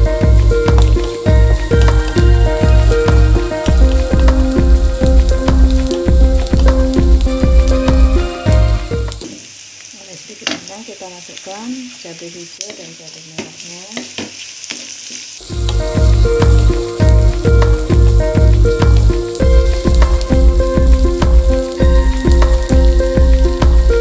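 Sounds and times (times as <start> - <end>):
backing track with steady beat: 0.0 - 9.2, 15.5 - 24.0
vegetables sizzling in a wok: 0.0 - 24.0.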